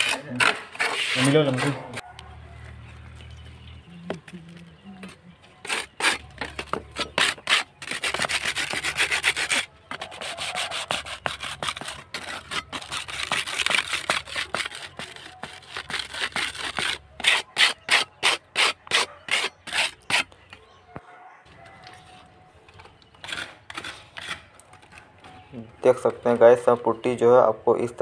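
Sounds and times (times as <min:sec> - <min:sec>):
putty blade scraping on brick: 0:00.0 - 0:02.0, 0:05.6 - 0:20.4, 0:22.9 - 0:25.0.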